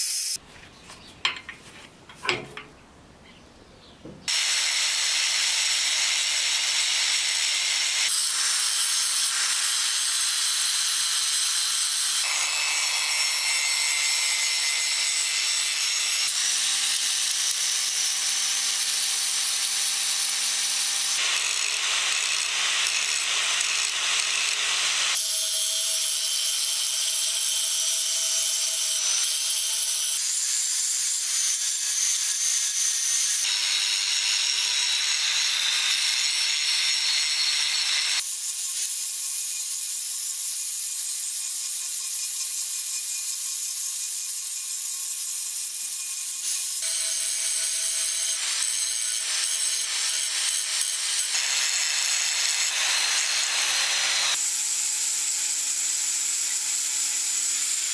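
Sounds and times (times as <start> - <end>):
angle grinder grinding metal: 4.3 - 57.9.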